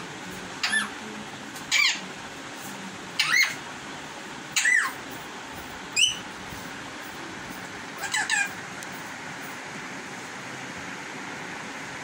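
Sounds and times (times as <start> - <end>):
parakeet screaming: 0.6 - 1.0, 1.7 - 2.1, 3.2 - 3.6, 4.5 - 5.0, 6.0 - 6.3, 8.0 - 8.6.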